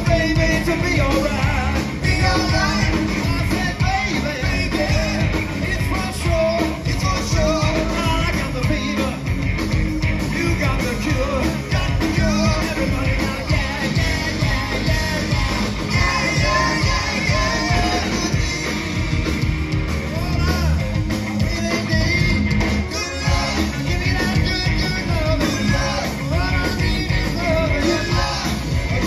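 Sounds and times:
distorted electric guitars: 0.0 - 29.0
driving drum beat: 0.0 - 29.0
lead singer: 0.0 - 29.0.

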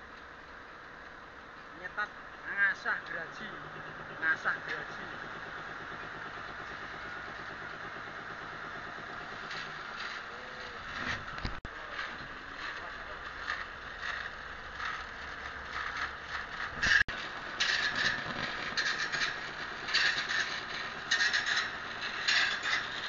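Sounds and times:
grinding wheel on saw blade: 1.8 - 23.0.

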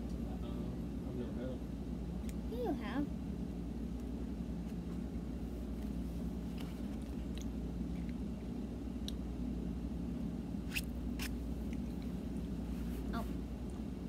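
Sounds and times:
steady low hum: 0.0 - 14.0
child chewing candy: 6.5 - 9.2, 11.2 - 12.5.

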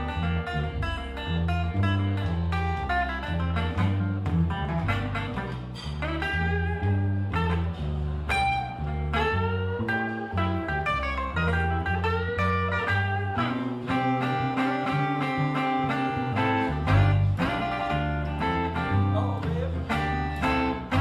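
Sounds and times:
acoustic guitar blues lead: 0.0 - 21.0
double bass plucking: 0.0 - 21.0.

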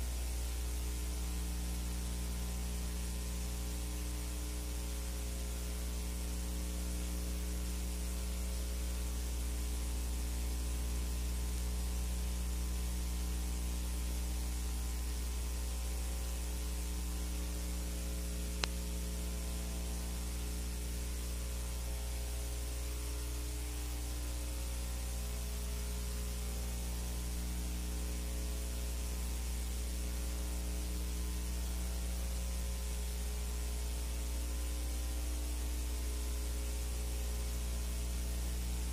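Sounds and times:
mains hum with hiss: 0.0 - 38.9
click: 18.5 - 18.9.

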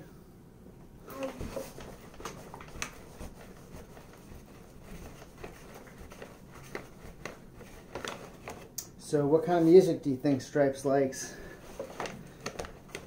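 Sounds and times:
soft rubbing: 1.2 - 8.4.

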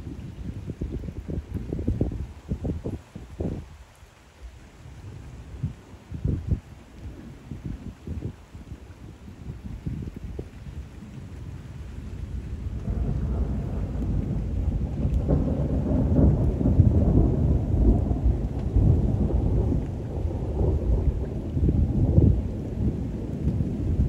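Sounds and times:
steady rain: 0.0 - 24.0
rolling thunder: 9.4 - 24.0.

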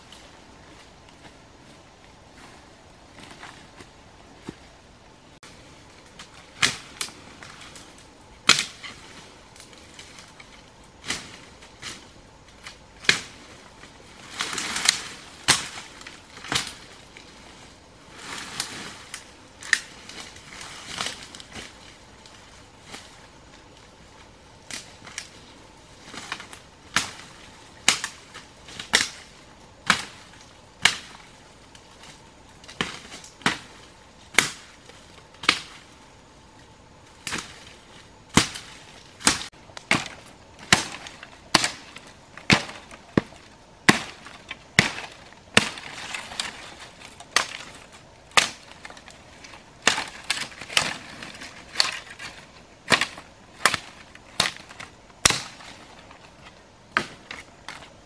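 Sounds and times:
machete chopping branches: 6.1 - 7.8, 8.4 - 13.6, 14.3 - 17.0, 18.4 - 21.9, 26.0 - 31.3, 32.0 - 35.9, 37.2 - 57.9.

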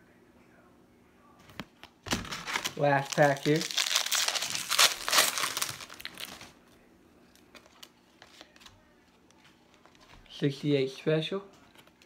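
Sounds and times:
card pack wrapper crinkling: 2.1 - 6.5.

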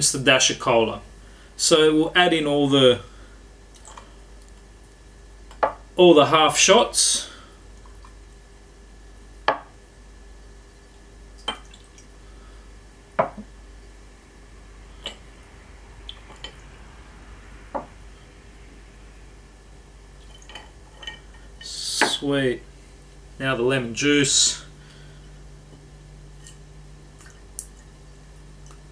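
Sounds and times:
glass set down on wooden board: 13.2 - 13.5
liquid trickling over ice: 20.2 - 21.2.

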